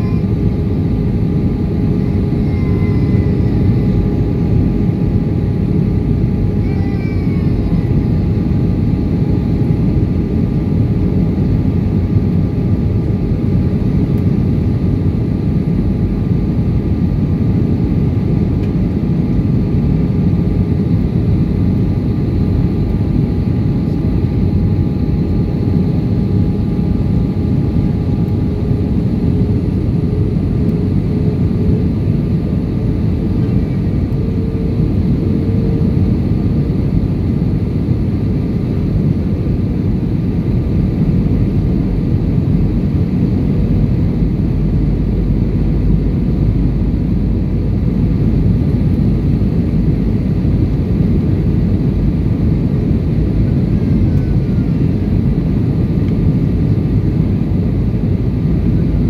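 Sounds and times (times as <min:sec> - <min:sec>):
airplane cabin roar: 0:00.0 - 0:59.0
faint engine tone: 0:32.6 - 0:36.7.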